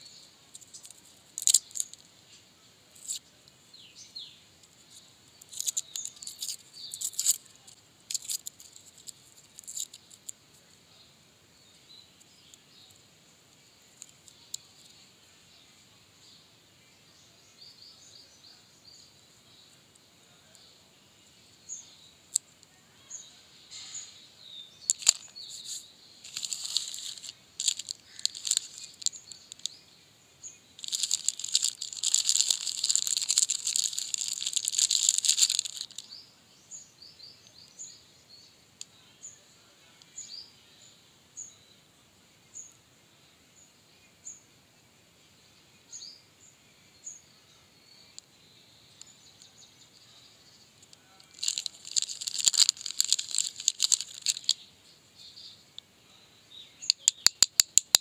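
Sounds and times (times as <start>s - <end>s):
plastic wrapper crinkling: 0.6s - 2.0s, 5.4s - 7.5s, 8.1s - 10.3s, 24.9s - 29.7s, 30.8s - 36.0s, 51.2s - 54.6s.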